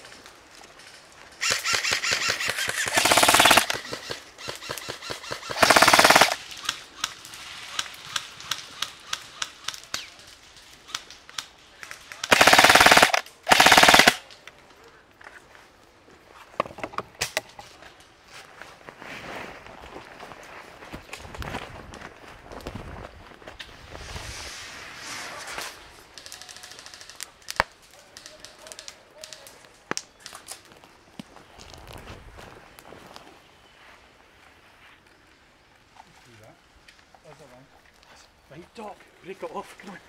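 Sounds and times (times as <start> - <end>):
pellets striking branches: 0.0 - 14.4
airsoft guns firing bursts: 1.4 - 6.8, 12.2 - 14.2.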